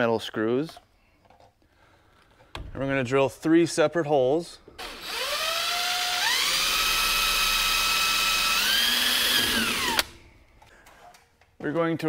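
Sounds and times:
cordless drill motor whine: 4.8 - 10.2.

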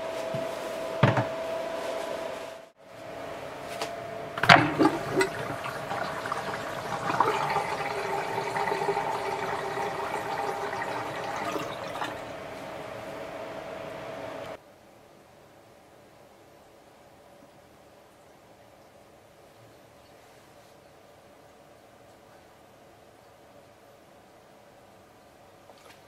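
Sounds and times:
water running down a drain: 4.4 - 12.6.

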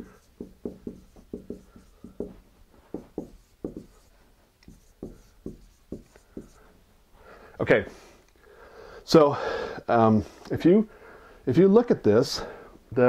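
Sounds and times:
marker squeaking on whiteboard: 0.0 - 6.7.

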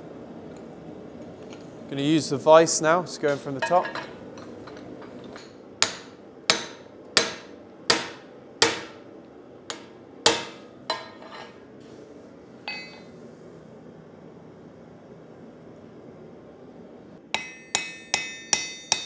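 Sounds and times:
hammer striking steel: 5.4 - 9.0, 9.7 - 11.2, 12.7 - 13.1, 17.3 - 19.0.

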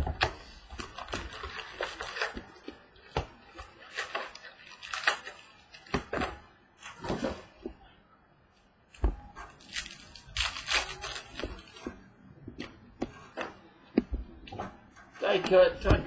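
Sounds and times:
cardboard and foil wrappers crinkling: 0.2 - 5.9, 9.5 - 11.9.

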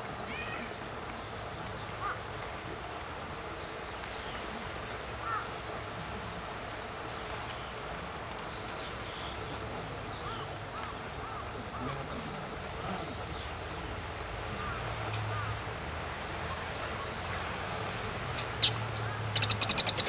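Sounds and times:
shrike calling: 18.5 - 20.0.

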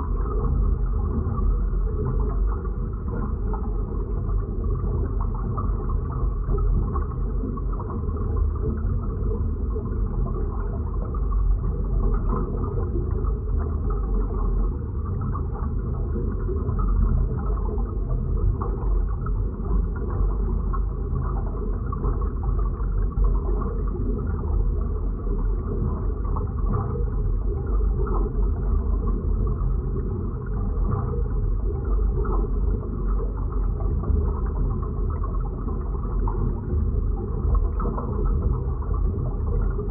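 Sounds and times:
deep muffled rumbling drone: 0.0 - 39.9.

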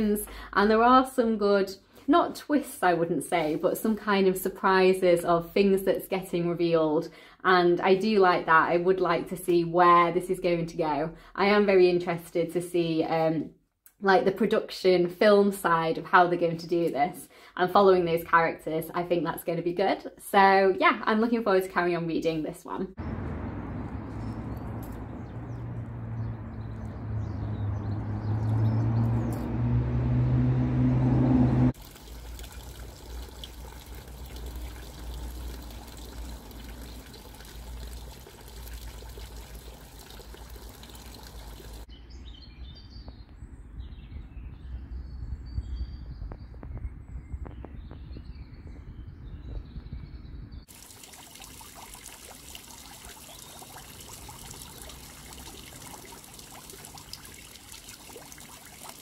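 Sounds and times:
birds chirping: 23.0 - 30.7, 39.6 - 59.0.

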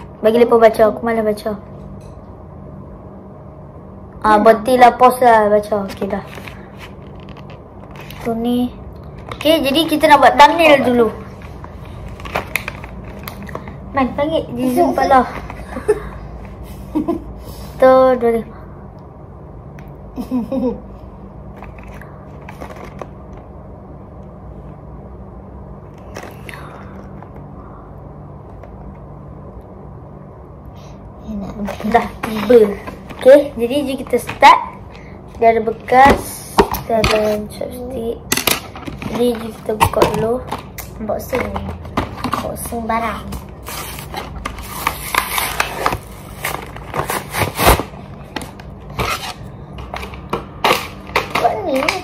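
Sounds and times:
low room hum: 0.0 - 52.0
plastic packaging crackling: 11.3 - 13.9.

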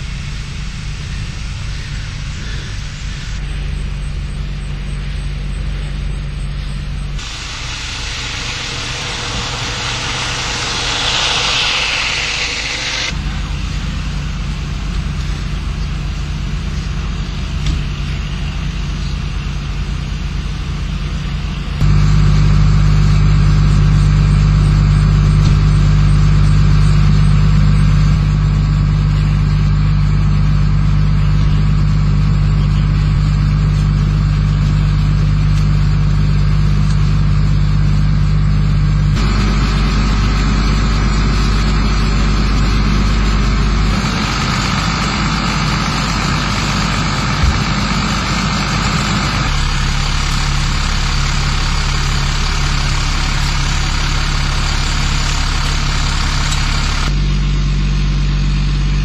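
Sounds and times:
vehicle engines idling: 0.0 - 59.0
rushing noise: 7.2 - 14.5, 39.2 - 52.0.

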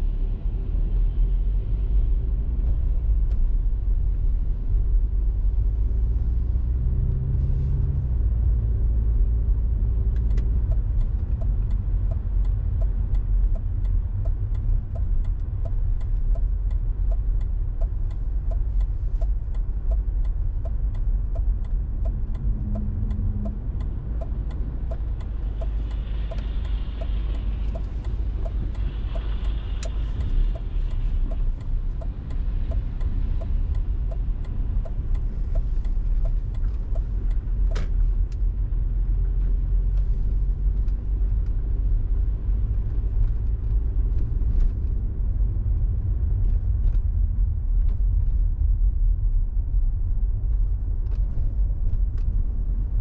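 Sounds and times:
car engine and road noise: 0.0 - 53.0
regular ticking: 10.2 - 38.4.

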